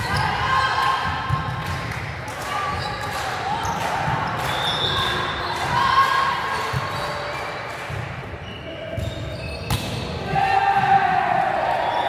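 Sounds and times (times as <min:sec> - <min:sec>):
shoe squeaks: 0:08.4 - 0:10.2.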